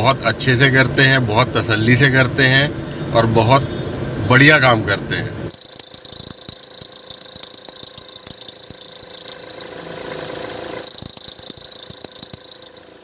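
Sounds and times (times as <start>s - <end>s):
engine belt whine: 0.0s - 13.0s
fast irregular ticking: 5.5s - 13.0s.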